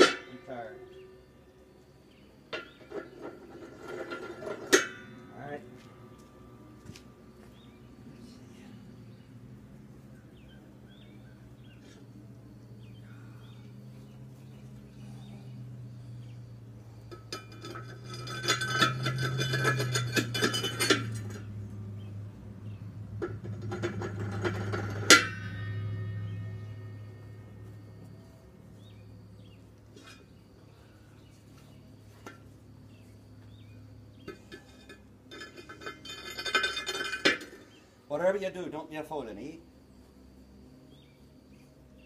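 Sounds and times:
sharp metal clang: 0.0 - 1.2, 4.2 - 5.6, 23.2 - 28.0
metal scraping and clinking: 0.0 - 6.1, 14.4 - 38.1
steady low hum: 0.0 - 42.0.

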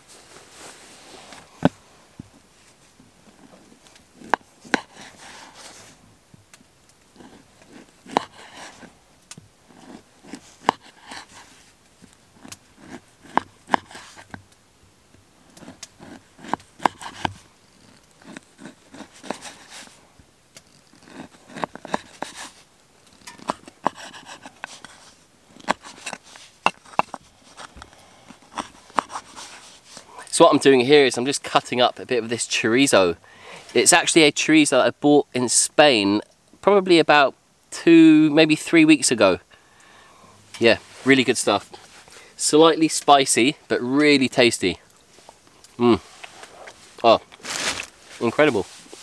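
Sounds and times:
soft cutting sounds: 7.0 - 9.0, 9.7 - 14.5, 15.4 - 30.1.

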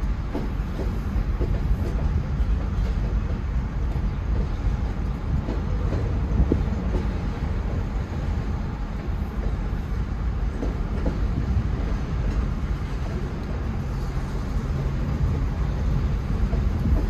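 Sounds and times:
train wheels rumbling on track: 0.0 - 17.0.

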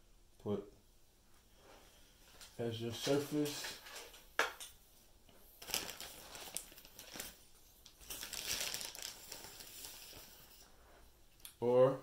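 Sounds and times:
rustling and crinkling: 1.3 - 4.3, 5.2 - 11.4.

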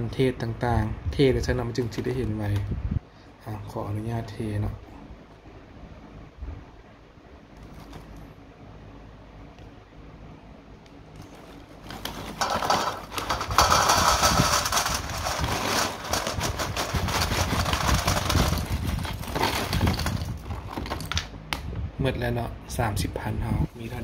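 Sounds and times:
plastic bag crinkling: 11.2 - 21.3
chips clattering on metal tray: 12.0 - 21.3.

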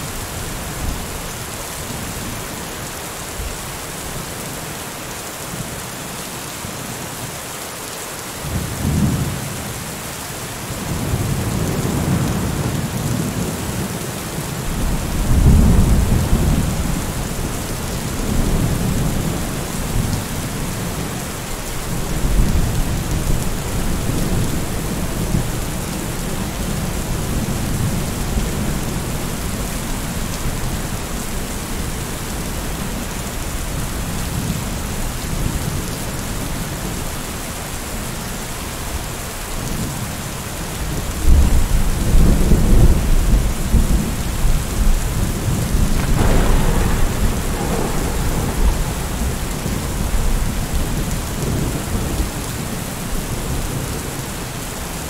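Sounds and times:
steady rain: 0.0 - 55.0
rolling thunder: 14.7 - 21.0, 41.2 - 52.8.

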